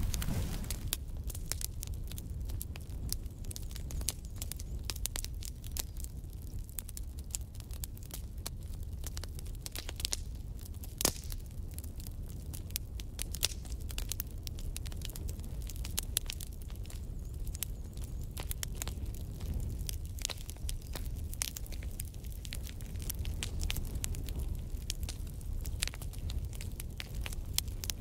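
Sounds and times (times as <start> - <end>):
fire crackling and popping: 0.0 - 28.0.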